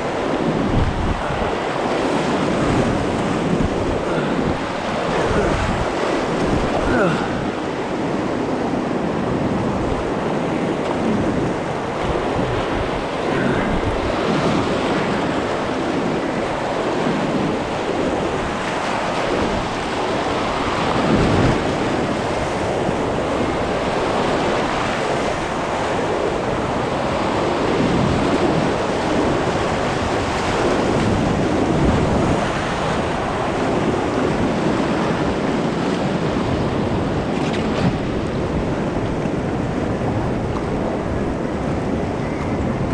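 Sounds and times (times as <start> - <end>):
rushing river water: 0.0 - 42.9
wind noise on microphone: 0.0 - 42.9.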